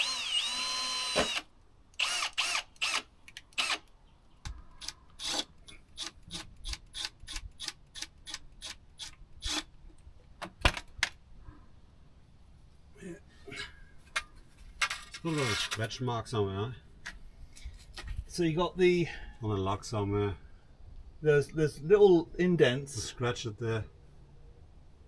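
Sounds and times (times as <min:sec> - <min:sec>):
cordless drill whirring: 0:00.0 - 0:03.8, 0:04.8 - 0:06.2.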